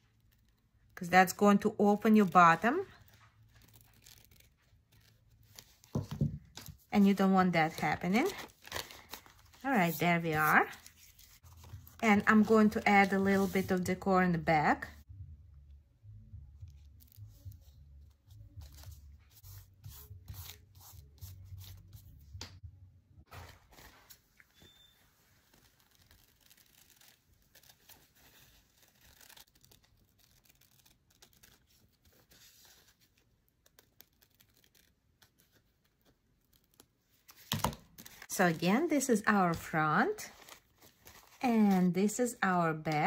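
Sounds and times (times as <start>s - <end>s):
paper napkin crinkling: 2.0s - 13.9s, 23.3s - 38.6s, 39.6s - 41.8s.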